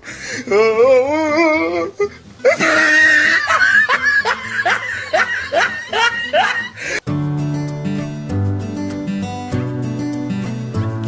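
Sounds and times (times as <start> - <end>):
high-pitched wavering laugh: 2.0 - 7.0.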